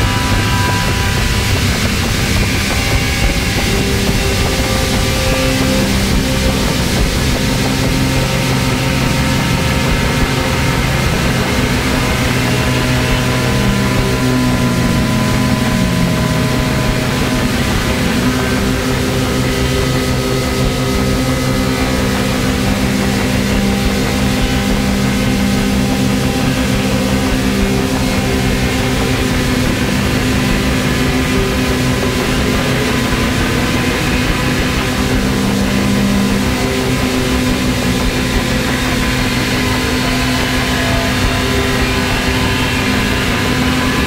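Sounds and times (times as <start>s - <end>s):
electronic drone music: 0.0s - 44.0s
wash of noise: 0.0s - 44.0s.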